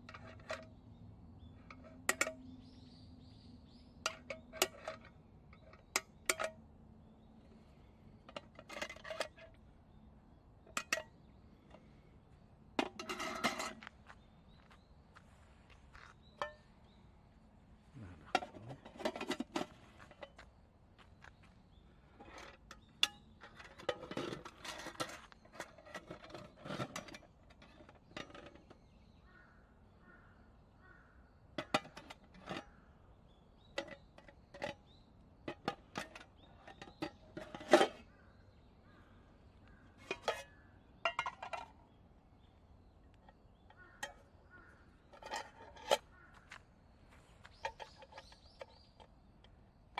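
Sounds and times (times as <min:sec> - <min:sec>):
metal mess tins clinking: 0:18.2 - 0:20.2, 0:35.5 - 0:38.0, 0:40.0 - 0:41.7.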